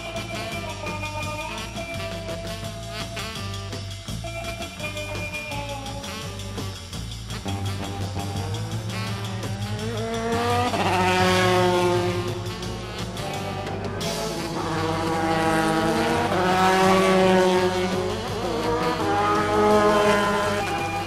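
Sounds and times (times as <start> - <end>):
racing car engine revving: 7.4 - 21.0.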